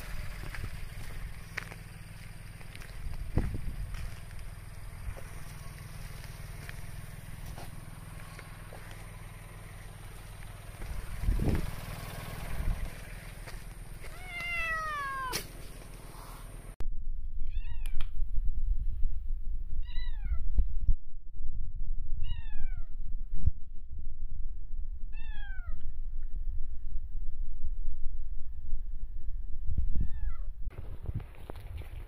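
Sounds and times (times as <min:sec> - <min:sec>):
low rumbling noise: 0:00.0 - 0:31.8
cats meowing: 0:14.0 - 0:15.5.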